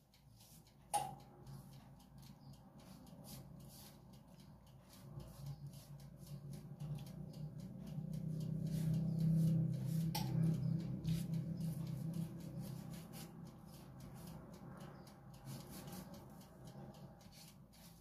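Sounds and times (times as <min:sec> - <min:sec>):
pastry brush strokes on dough: 0:00.1 - 0:18.0
low hum: 0:05.1 - 0:17.3.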